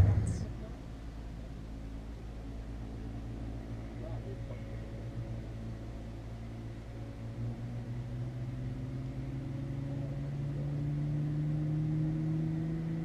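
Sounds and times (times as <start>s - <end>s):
car engine idling: 0.0s - 9.3s.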